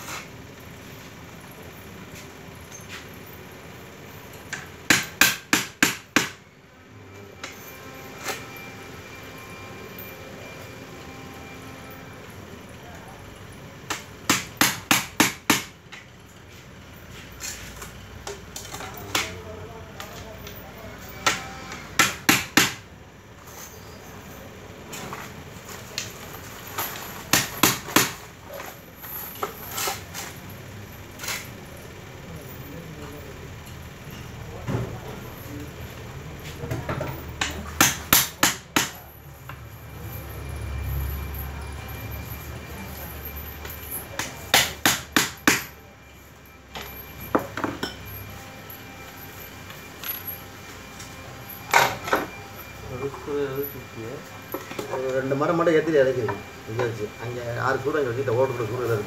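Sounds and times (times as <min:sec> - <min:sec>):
hammer striking wooden box: 0:04.9 - 0:06.4, 0:13.9 - 0:15.7, 0:22.0 - 0:22.8, 0:27.3 - 0:28.2, 0:37.4 - 0:39.0, 0:44.2 - 0:45.7
hammer knocking on wood: 0:14.3 - 0:15.7, 0:22.0 - 0:22.8.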